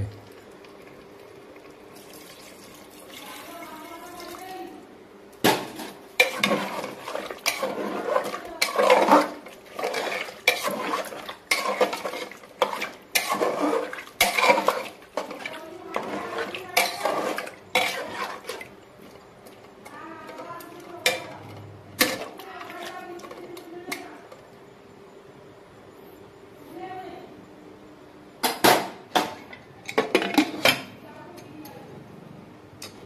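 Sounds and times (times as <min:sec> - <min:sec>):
water pouring into cooker: 0:00.0 - 0:04.5
wooden spatula scraping cooker: 0:05.8 - 0:18.7, 0:19.9 - 0:24.4.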